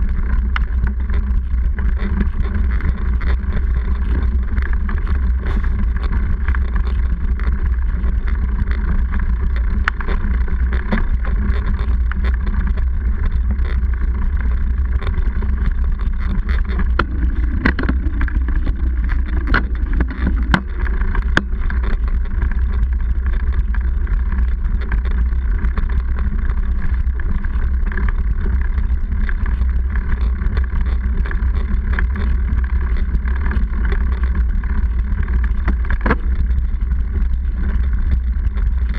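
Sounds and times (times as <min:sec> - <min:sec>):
bike tyres rumbling on dirt: 0:00.0 - 0:38.9
bike knocks and rattles: 0:14.8 - 0:23.5.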